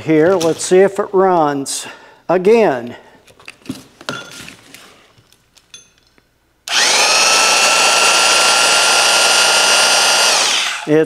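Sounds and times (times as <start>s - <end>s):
reciprocating saw running: 6.7s - 11.0s.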